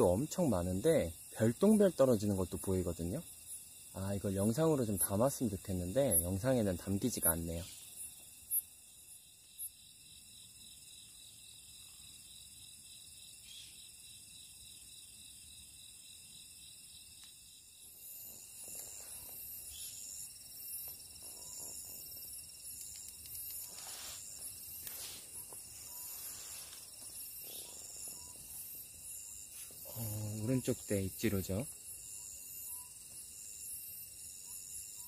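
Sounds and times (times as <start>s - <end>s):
crickets chirring: 0.0s - 35.0s
slower rhythmic insect chirp: 0.0s - 35.0s
soft rustles: 20.8s - 27.2s.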